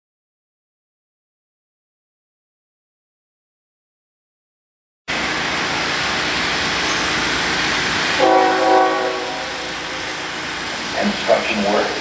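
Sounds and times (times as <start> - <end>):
steady rushing noise: 5.1 - 12.0
train horn chord: 8.2 - 10.2.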